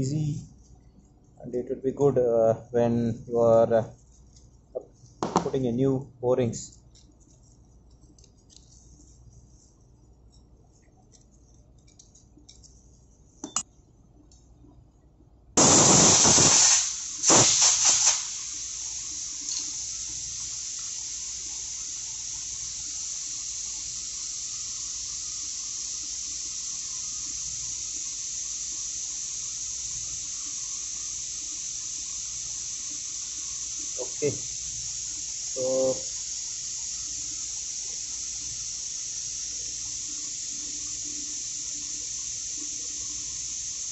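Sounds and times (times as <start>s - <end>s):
loud hiss: 0.0s - 0.2s, 5.2s - 5.8s, 15.6s - 43.9s.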